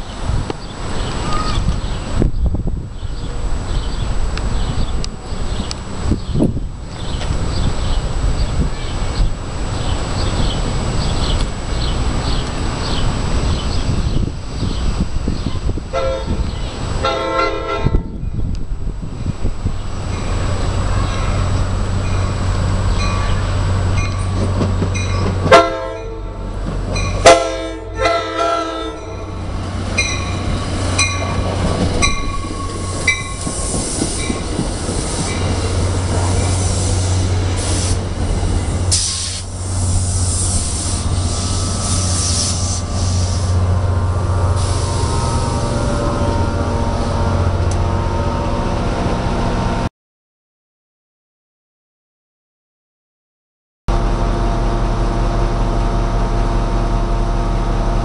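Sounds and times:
diesel locomotive drone: 0.0s - 49.9s, 53.9s - 58.0s
train wheel and rail noise: 0.0s - 49.9s, 53.9s - 58.0s
train horn blasts: 15.9s - 18.2s, 25.4s - 26.6s, 27.2s - 29.4s, 44.4s - 48.9s
crossing warning bells ringing: 19.1s - 39.0s, 41.1s - 49.7s.

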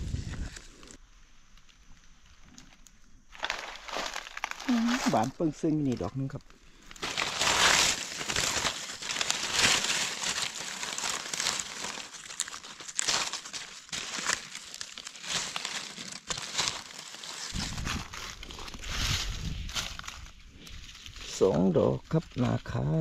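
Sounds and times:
dry leaves crackling and rustling: 0.1s - 23.0s
low rumble: 17.5s - 21.4s.

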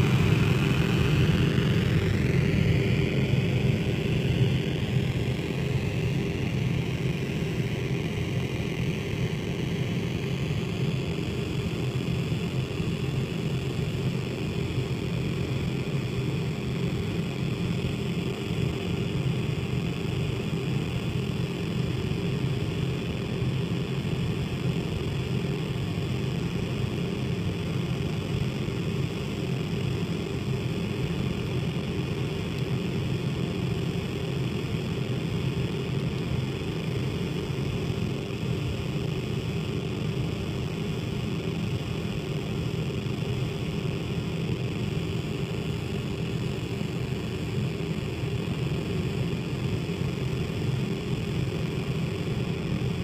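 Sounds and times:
synthesizer low drone: 0.0s - 19.5s.

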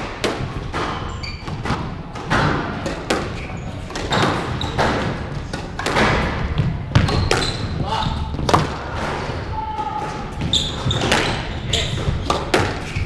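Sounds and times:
squash ball knocking off rackets: 0.2s - 9.1s
shoes squeaking on wooden floor: 0.6s - 5.8s, 6.5s - 8.4s, 9.6s - 13.0s.

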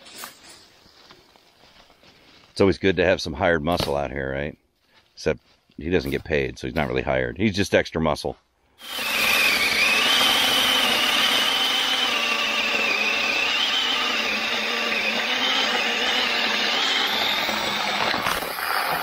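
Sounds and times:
chainsaw cutting log: 8.8s - 19.0s
wood cracking: 14.6s - 19.0s.

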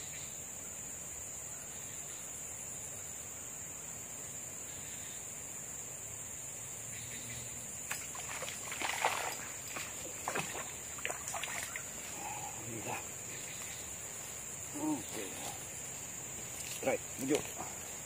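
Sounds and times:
high-pitched insect drone: 4.3s - 18.0s
fish splashing at water surface: 7.9s - 12.0s.

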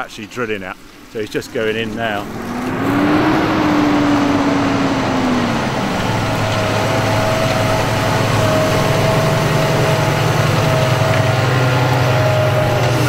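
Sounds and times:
high whine: 1.1s - 13.0s
tractor engine under load: 1.1s - 13.0s.

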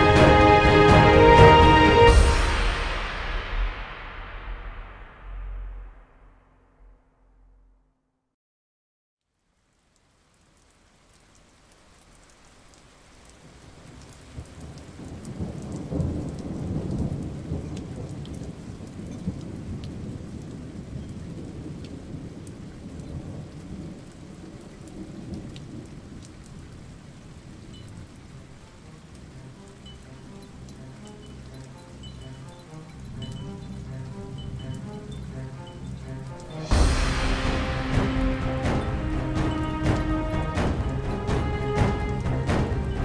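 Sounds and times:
rain hiss: 0.0s - 6.3s, 9.3s - 43.0s
rolling thunder rumble: 0.0s - 6.9s, 14.3s - 27.6s, 33.1s - 43.0s.

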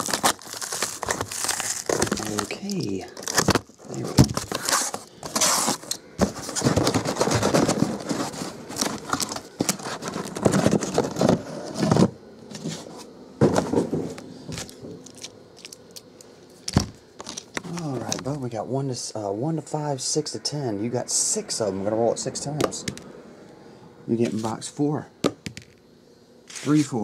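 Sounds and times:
cardboard box handling: 0.0s - 15.7s
boxes knocking on a table: 13.4s - 14.6s.

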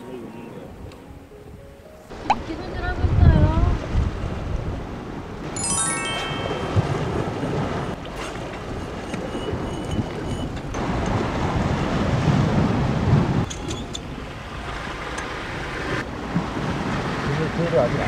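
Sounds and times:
wind buffeting microphone: 1.5s - 5.5s, 6.7s - 18.0s
sea surf on rocky shore: 2.1s - 18.0s.

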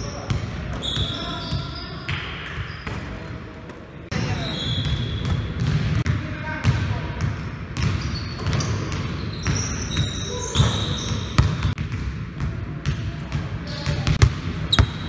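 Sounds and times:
basketballs bouncing on wooden floor: 4.1s - 15.0s.

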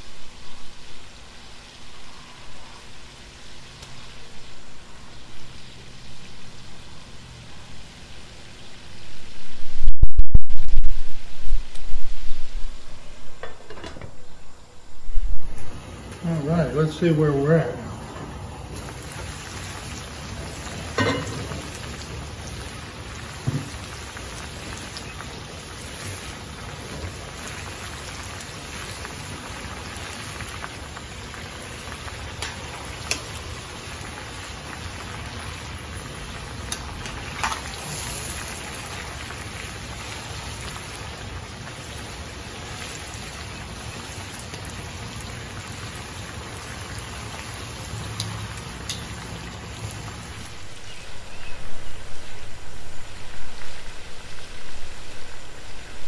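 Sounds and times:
food frying in hot oil: 15.8s - 51.6s
metal clinks of lid and tongs: 21.0s - 21.5s.

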